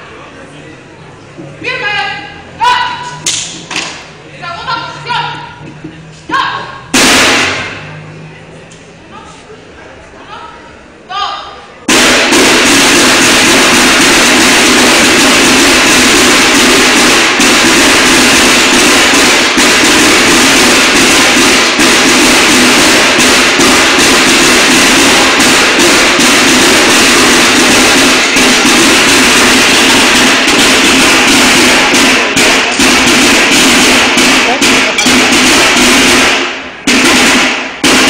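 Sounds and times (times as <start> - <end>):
snare drums playing fast cadence: 6.9 - 7.7, 11.9 - 38.0.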